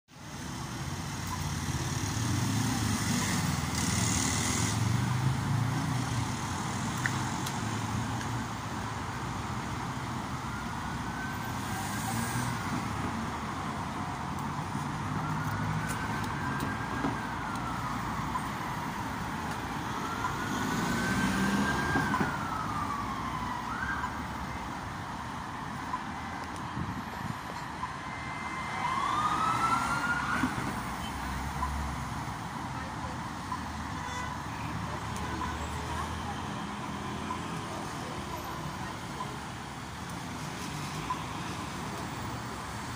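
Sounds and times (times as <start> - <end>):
passing traffic: 0.1 - 42.9
emergency siren wailing: 10.0 - 27.0, 27.8 - 32.0.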